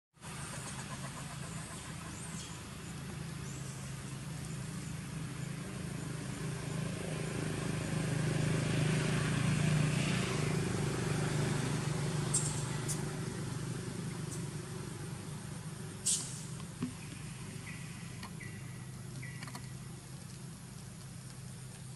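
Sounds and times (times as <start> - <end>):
vehicle engine hum: 0.2 - 21.9.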